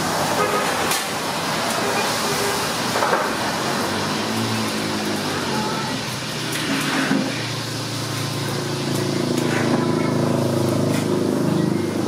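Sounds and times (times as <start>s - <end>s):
engine humming: 2.6s - 12.0s.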